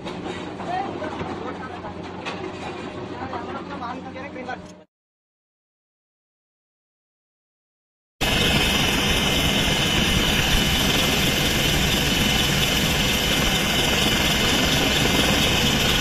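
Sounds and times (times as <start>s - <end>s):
helicopter engine and rotor rumble: 8.2s - 16.0s
high whine: 8.2s - 16.0s.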